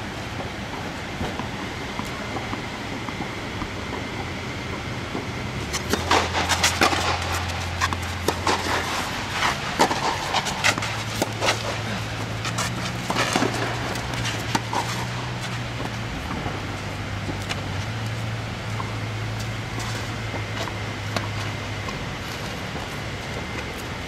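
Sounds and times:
steady low hum: 0:00.0 - 0:24.0
racket striking tennis ball: 0:05.6 - 0:21.6.

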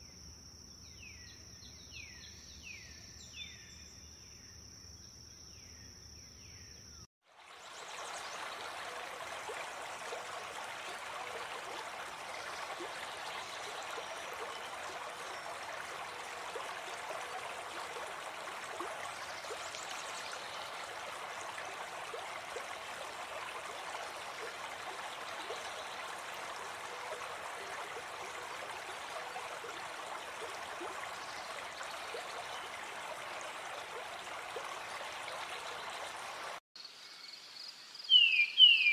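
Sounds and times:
running water rushing: 0:07.2 - 0:36.6.

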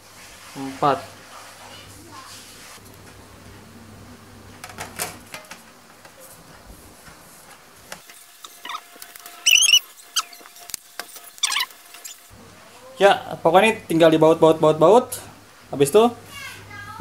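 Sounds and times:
short high squeaks: 0:08.4 - 0:12.3.

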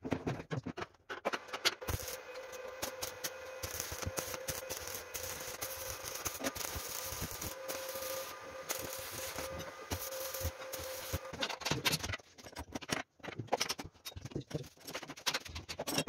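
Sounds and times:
arc welding crackling hiss: 0:01.8 - 0:11.4.

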